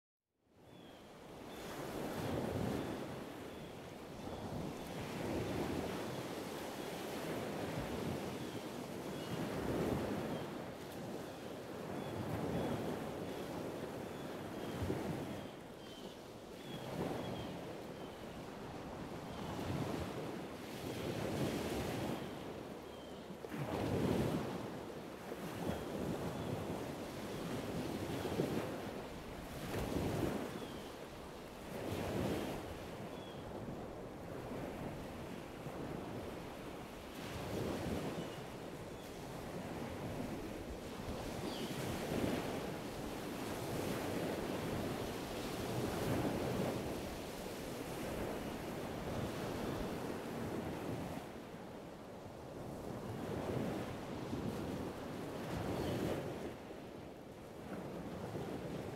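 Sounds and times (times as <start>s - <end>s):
waves washing ashore: 16.4s - 58.9s.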